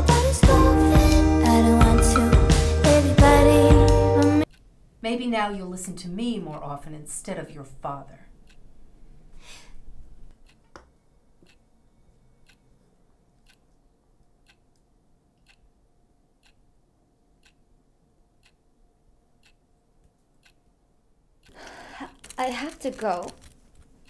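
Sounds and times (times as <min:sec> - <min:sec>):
clock ticking faintly: 0:03.2 - 0:05.0, 0:06.4 - 0:09.3, 0:10.3 - 0:10.7, 0:11.3 - 0:14.8, 0:15.4 - 0:15.8, 0:16.4 - 0:16.7, 0:17.3 - 0:18.7, 0:19.4 - 0:20.8, 0:21.4 - 0:23.4.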